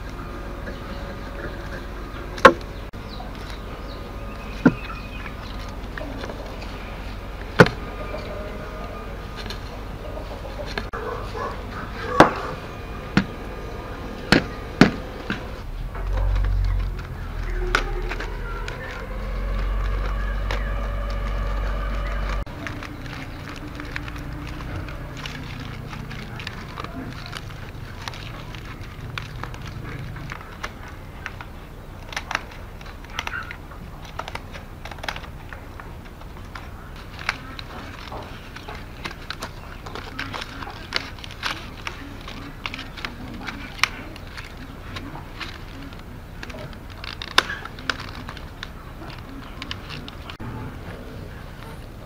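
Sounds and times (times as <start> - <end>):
low rumble of handling: 0.0 - 52.0
pliers snipping bamboo: 16.2 - 50.4.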